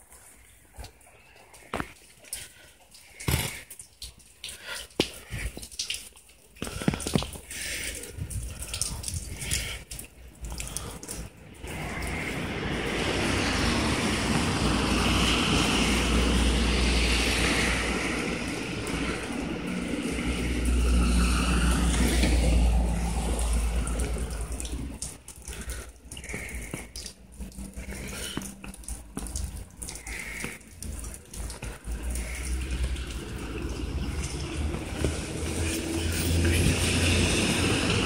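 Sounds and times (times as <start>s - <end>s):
tyres hissing on wet road: 10.7s - 38.0s.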